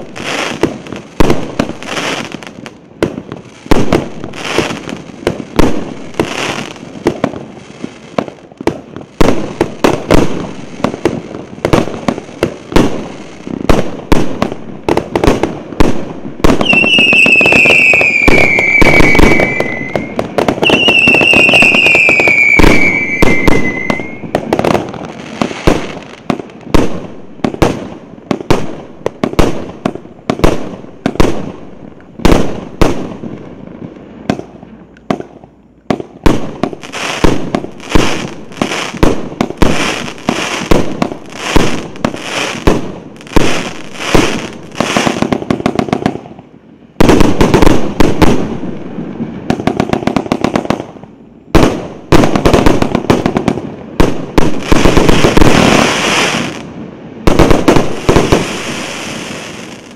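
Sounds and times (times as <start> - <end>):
firework shells launching and bursting: 16.5 - 24.4.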